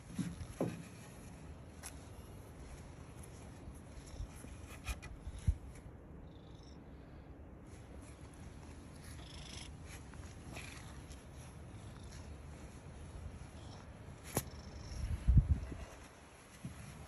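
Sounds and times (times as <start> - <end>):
cat purring: 9.0 - 12.4.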